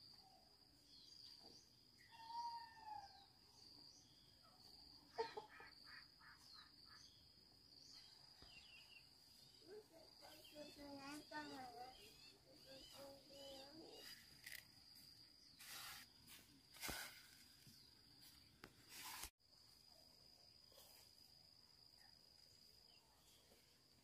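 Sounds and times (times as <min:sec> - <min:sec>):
insect trilling: 0:10.6 - 0:16.0
rustling and brushing: 0:13.9 - 0:19.3.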